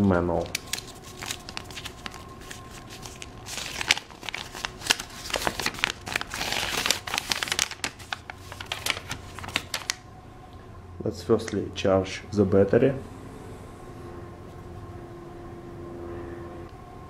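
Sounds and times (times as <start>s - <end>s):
paper crinkling and rustling: 0.3s - 10.0s.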